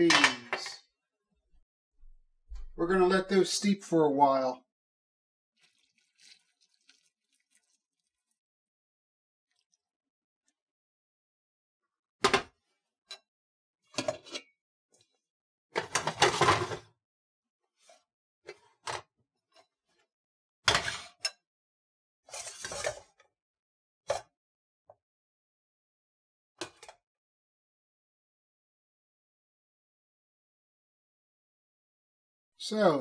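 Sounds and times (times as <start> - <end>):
kitchenware clatter: 0.0 - 0.8
pots and pans clinking: 0.0 - 0.8.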